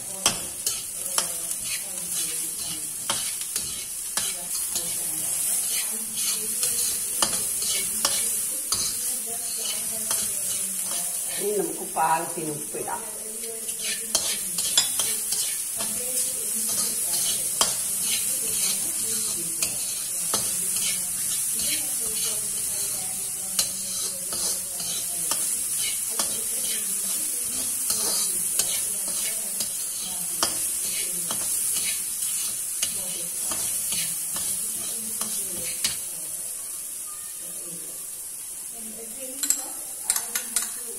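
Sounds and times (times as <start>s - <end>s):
vegetables sizzling in a wok: 0.0s - 40.9s
metal spatula scraping pan: 0.3s - 11.4s, 13.6s - 36.1s.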